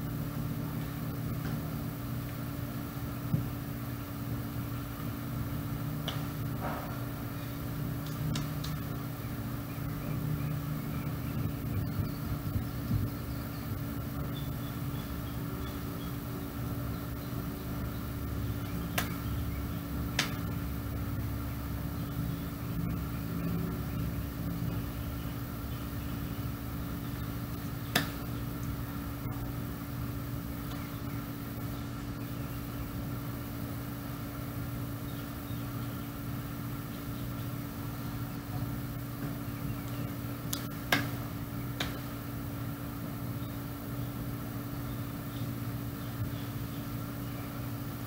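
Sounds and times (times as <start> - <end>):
mechanical hum with fixed tones: 0.0 - 48.0
faint sharp clicks: 39.8 - 41.0.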